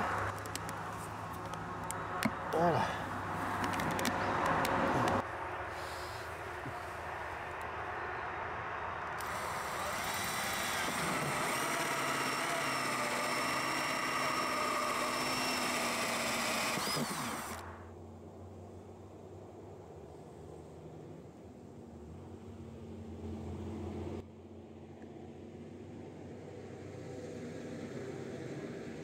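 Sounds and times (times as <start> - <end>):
cordless drill boring plastic: 9.2 - 17.8.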